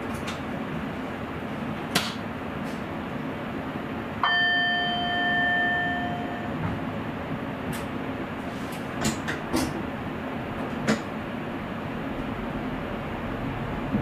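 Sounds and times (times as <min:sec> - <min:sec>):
train running noise: 0:00.0 - 0:14.0
bell-like chime ding: 0:04.2 - 0:06.6.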